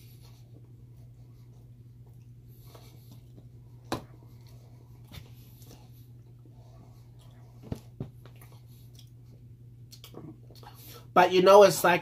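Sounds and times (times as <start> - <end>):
steady low hum: 0.0 - 12.0
faint chewing: 4.2 - 11.0.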